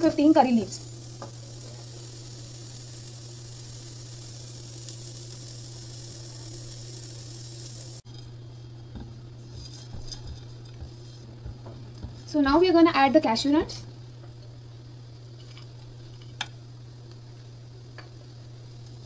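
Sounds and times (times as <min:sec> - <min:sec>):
low hum: 0:00.0 - 0:12.9
onions sizzling in a wok: 0:00.0 - 0:19.0.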